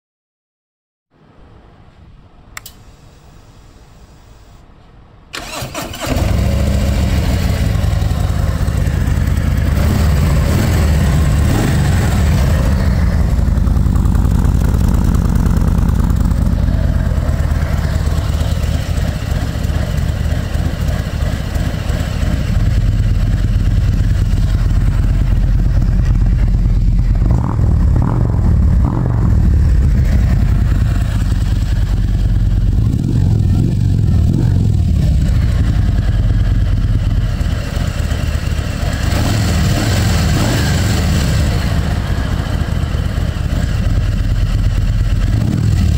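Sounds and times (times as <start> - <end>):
motorcycle starter cranking: 5.3 - 6.8
motorcycle engine idling: 5.4 - 45.9.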